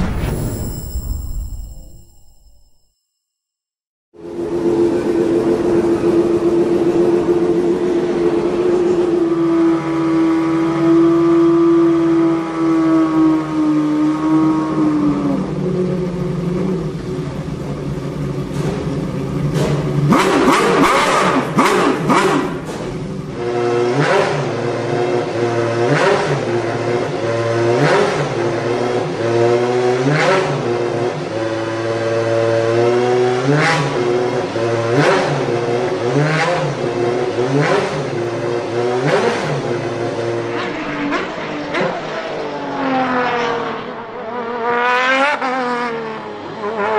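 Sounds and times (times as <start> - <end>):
race car engine idling and blipped: 4.2 - 46.9
race car engine revving sharply: 18.3 - 46.9.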